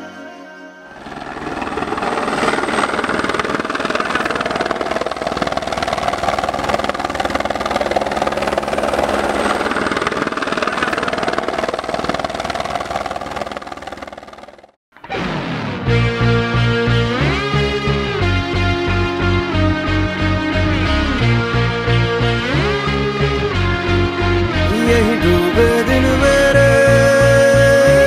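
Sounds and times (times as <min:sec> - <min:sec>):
helicopter rotor and engine: 0:01.0 - 0:14.8.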